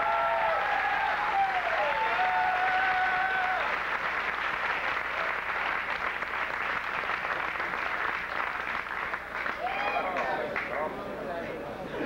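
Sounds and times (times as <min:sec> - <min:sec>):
person cheering: 0:00.0 - 0:03.7, 0:09.6 - 0:10.1
audience applauding: 0:00.0 - 0:10.9.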